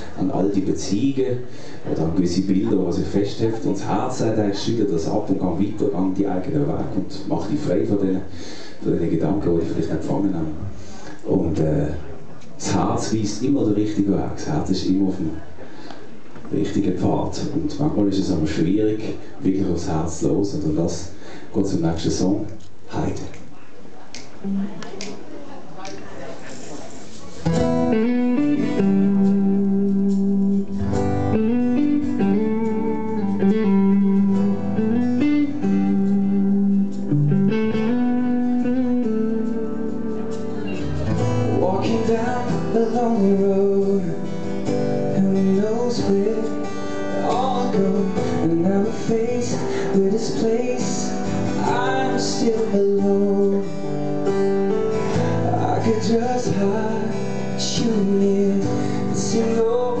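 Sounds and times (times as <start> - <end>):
acoustic guitar chords: 24.4 - 25.1, 27.3 - 60.0
man singing into a microphone: 41.1 - 54.0, 55.0 - 60.0.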